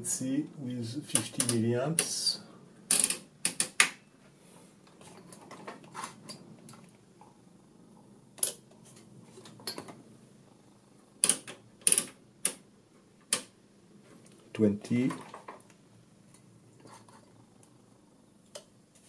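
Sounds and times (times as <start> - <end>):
test probes clicking and tapping: 11.2 - 12.6.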